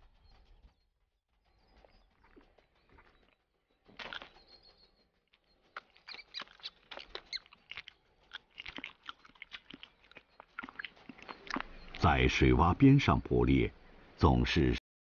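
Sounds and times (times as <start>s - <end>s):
hedgehog crunching and chewing: 1.8s - 12.8s.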